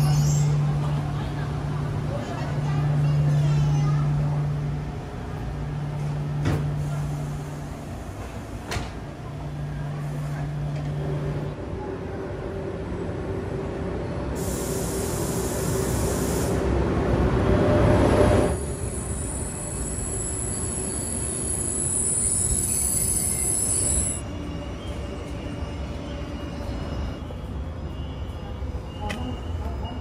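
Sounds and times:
hiss of air: 14.4 - 16.8.

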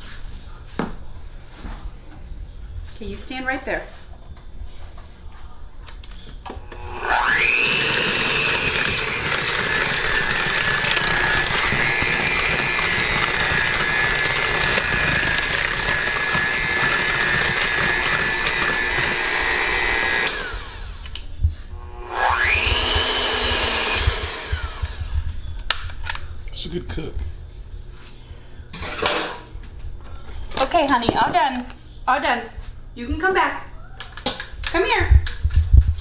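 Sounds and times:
electric hand mixer whining: 6.5 - 25.5.

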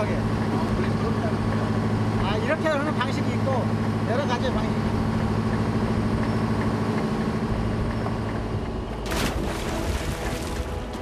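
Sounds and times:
boat engine humming: 0.0 - 11.0
sharp splash on water: 9.1 - 11.0.

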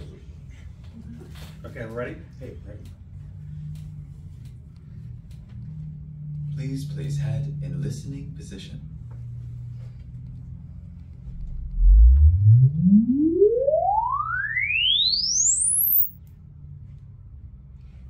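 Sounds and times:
sine sweep tone: 11.3 - 16.2.

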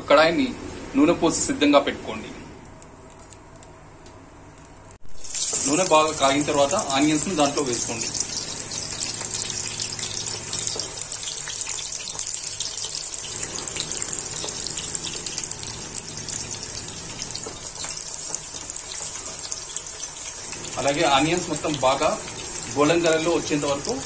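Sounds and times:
onions sizzling in hot oil: 5.1 - 24.0.

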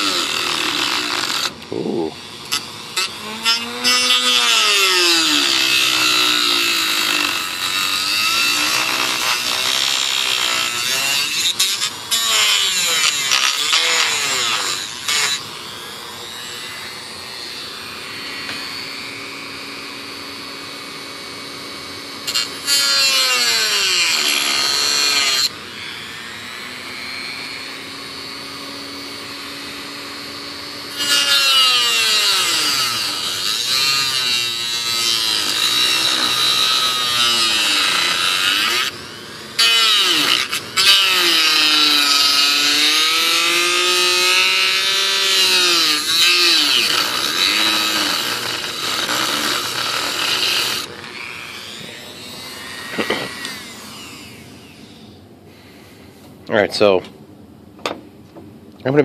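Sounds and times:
disc grinding through plywood: 0.0 - 15.4, 30.9 - 39.0, 39.6 - 54.5
rotary tool motor whine: 0.0 - 56.1.

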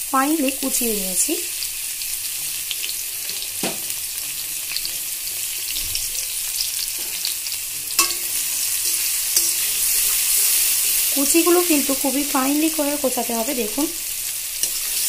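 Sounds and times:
onions sizzling in oil: 0.0 - 15.0
spatula striking metal pan: 8.0 - 9.7
spatula stirring: 8.0 - 11.1.

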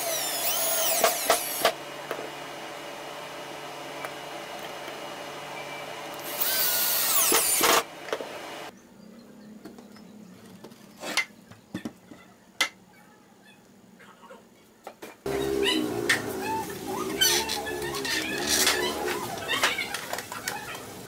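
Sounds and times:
cordless drill driving a screw: 0.0 - 1.7, 6.2 - 7.8.

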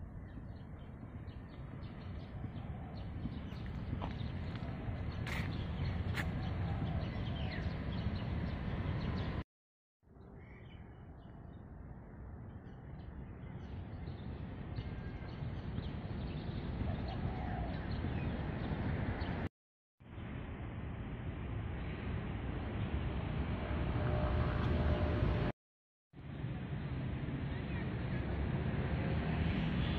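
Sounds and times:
birds chirping: 0.1 - 9.4
low rumbling noise: 20.2 - 25.5.

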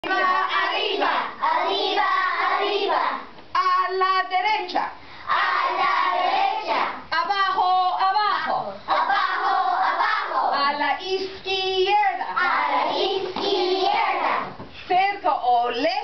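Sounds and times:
children chanting together: 0.0 - 3.3, 5.3 - 7.0, 8.9 - 10.6, 12.4 - 14.6.

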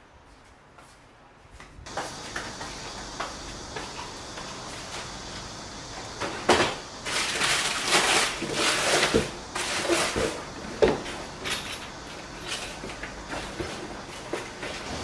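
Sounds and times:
plastic wrapping rustling: 6.6 - 14.8.

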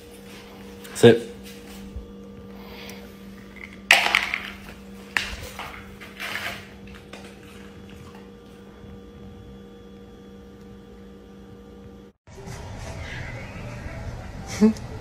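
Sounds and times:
steady low hum: 0.0 - 15.0
plastic bowl rattling on concrete: 3.6 - 7.7.

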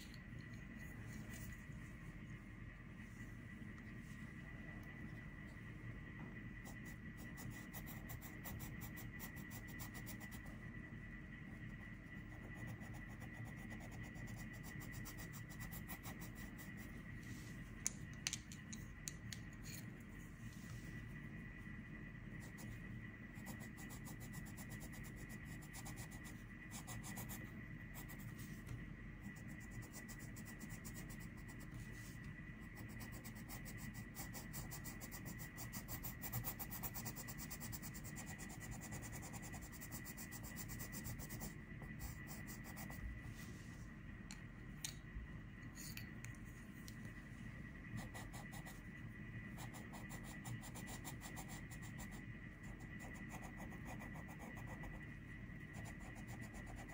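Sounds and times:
faint steady tone: 0.0 - 56.9
pencil scratching on paper: 6.6 - 10.5, 11.7 - 17.0, 23.4 - 43.0, 49.6 - 55.0, 55.7 - 56.9.

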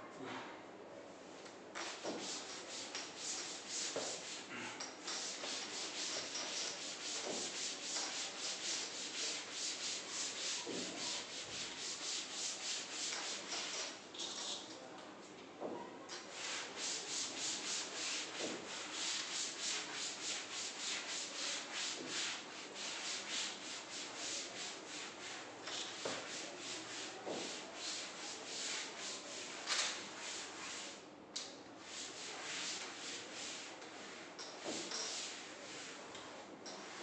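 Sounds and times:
duster scrubbing chalkboard: 1.8 - 14.7, 16.2 - 31.0, 31.8 - 37.0.

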